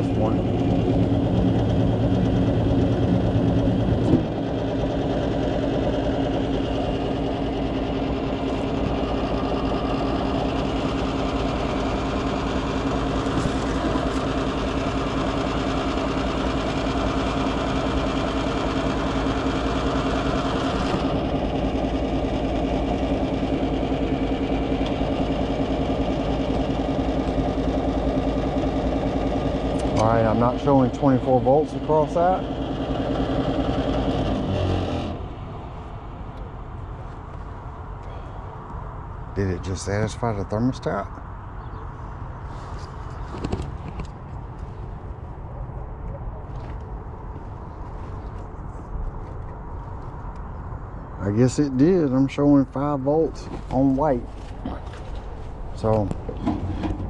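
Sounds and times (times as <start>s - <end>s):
furnace motor hum: 0.0s - 36.6s, 53.3s - 57.0s.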